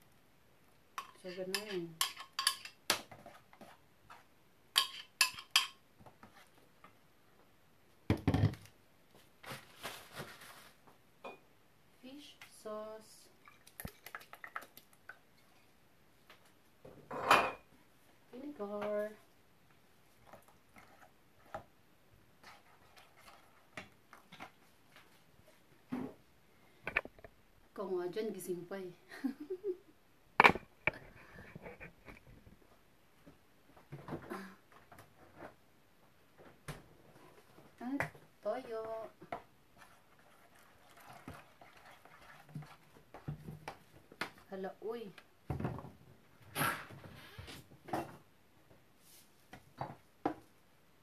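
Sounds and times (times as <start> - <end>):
kitchen utensils clicking and tapping: 1.0 - 2.9, 4.8 - 5.8.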